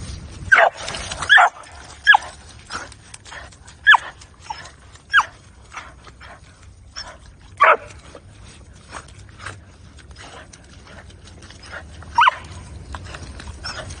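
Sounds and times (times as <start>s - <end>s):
splashing in muddy water: 0.0s - 14.0s
dog barking: 0.5s - 2.2s, 7.6s - 7.9s.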